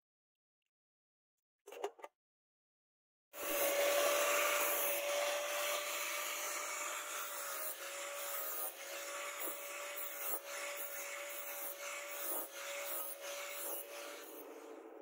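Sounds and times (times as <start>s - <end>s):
angle grinder grinding steel: 3.4s - 15.0s.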